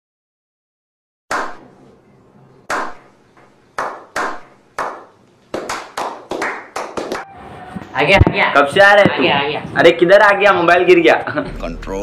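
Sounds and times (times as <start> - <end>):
sharp loud knocks: 3.8 - 5.8.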